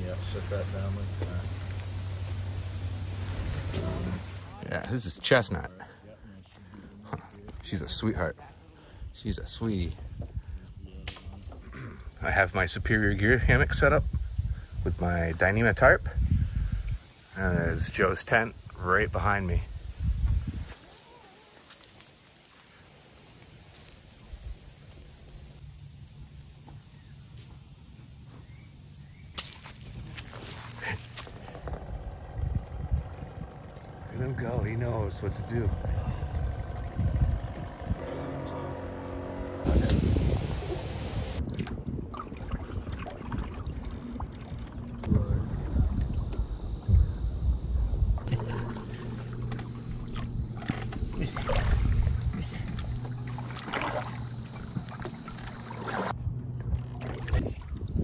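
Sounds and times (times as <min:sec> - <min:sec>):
canoe paddling water: 0:00.0 - 0:07.6, 0:29.9 - 0:57.9
insects chorus: 0:00.0 - 0:58.0
low wind rumble: 0:11.9 - 0:20.7, 0:31.3 - 0:58.0.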